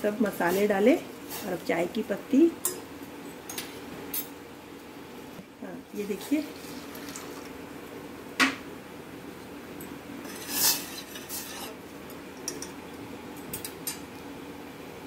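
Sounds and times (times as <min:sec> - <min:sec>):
spoon scraping saucepan: 0:10.2 - 0:11.8.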